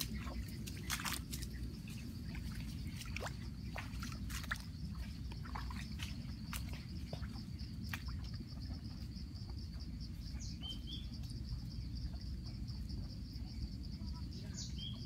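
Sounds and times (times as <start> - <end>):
insects trilling: 0.0 - 15.0
low steady rumble: 0.0 - 15.0
bird chirps: 10.2 - 12.6, 14.4 - 15.0.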